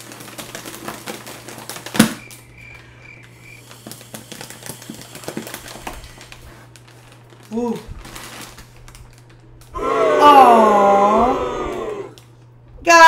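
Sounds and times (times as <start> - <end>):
foil balloon crinkling: 0.0 - 9.7.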